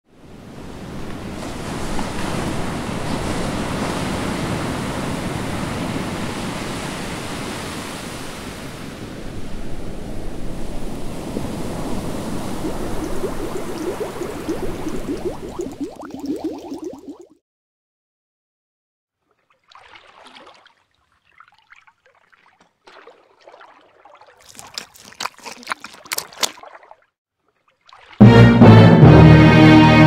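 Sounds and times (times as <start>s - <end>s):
ocean waves rushing: 0.3s - 17.2s
bubbling gurgles: 10.8s - 17.4s.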